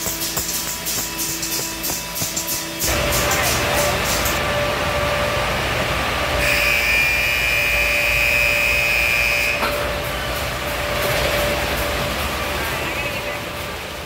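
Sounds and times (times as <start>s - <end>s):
steady motor hum: 0.0s - 12.4s
high whine: 0.0s - 13.4s.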